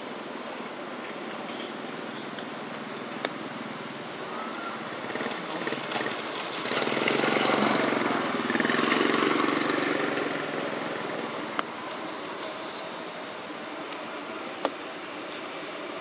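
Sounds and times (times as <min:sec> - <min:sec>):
motor engine passing by: 0:04.3 - 0:11.5.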